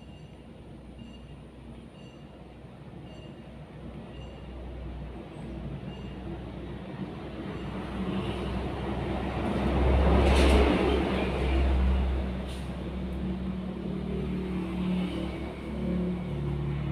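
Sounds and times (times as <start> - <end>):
vehicle passing by: 7.9 - 16.9.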